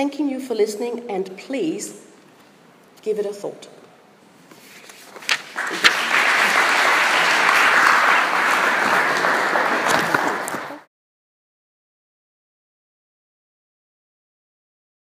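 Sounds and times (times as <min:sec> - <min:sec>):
audience applauding: 0:05.4 - 0:10.9.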